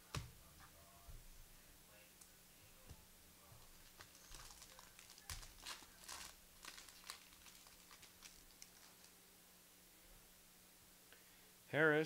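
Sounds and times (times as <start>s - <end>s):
foil wrapper crinkling and tearing: 3.6s - 9.2s.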